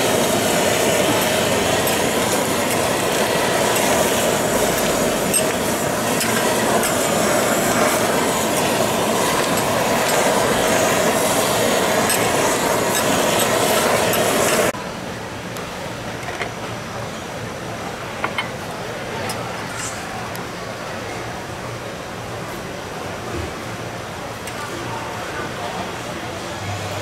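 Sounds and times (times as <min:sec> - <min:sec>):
fish sizzling on griddle: 0:00.0 - 0:14.7
blowtorch flame hissing: 0:00.0 - 0:14.8.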